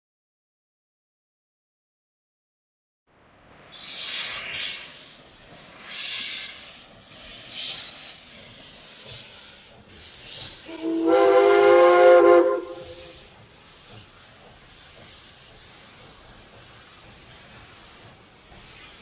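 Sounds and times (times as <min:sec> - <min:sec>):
steam locomotive chuffing: 0:03.6 - 0:19.0
steam whistle chord: 0:10.7 - 0:13.2.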